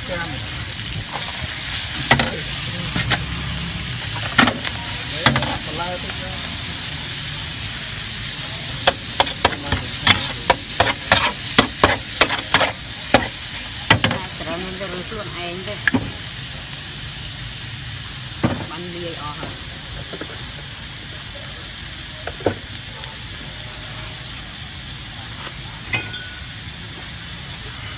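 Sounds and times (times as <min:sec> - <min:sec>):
noodles sizzling on a griddle: 0:00.0 - 0:27.9
metal spatula scraping and clacking: 0:08.8 - 0:13.3.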